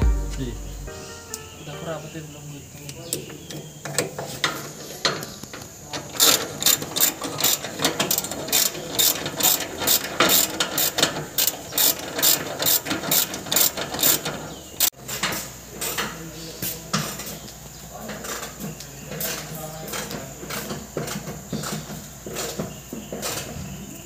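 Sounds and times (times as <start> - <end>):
ratchet wrench clicking: 6.2 - 14.2.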